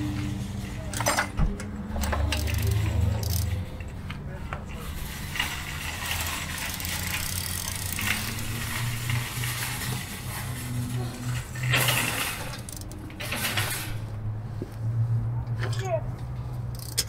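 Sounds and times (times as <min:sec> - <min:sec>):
socket wrench ratcheting: 0:02.0 - 0:03.5, 0:06.2 - 0:08.5, 0:11.6 - 0:13.1, 0:16.7 - 0:17.0.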